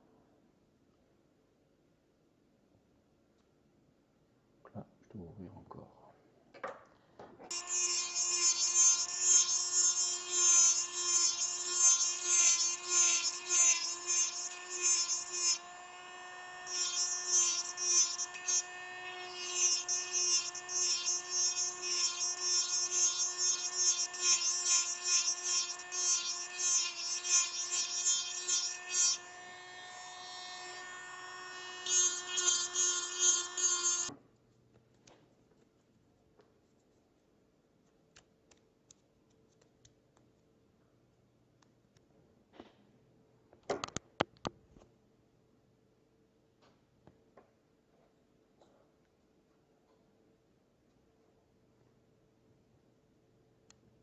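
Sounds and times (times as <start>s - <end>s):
micro-motor whining: 7.5s - 34.1s.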